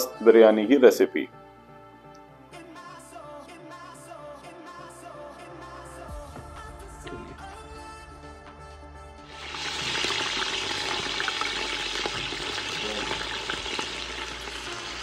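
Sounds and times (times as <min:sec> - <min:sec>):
music: 0:00.0 - 0:15.0
chicken sizzling in hot oil: 0:09.3 - 0:15.0.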